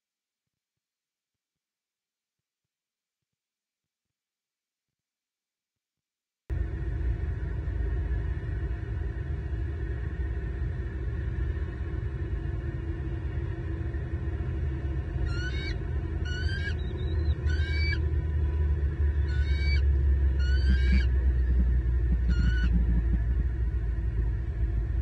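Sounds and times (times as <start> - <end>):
steady low rumble: 6.5 - 25.0
eagle chirping calls: 15.3 - 18.0, 19.1 - 23.2.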